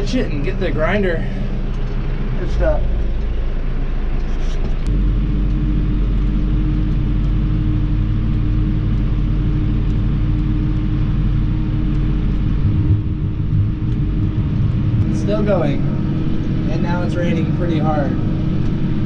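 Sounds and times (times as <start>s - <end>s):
steady higher hum: 0.0s - 19.0s
tractor engine running: 0.0s - 19.0s.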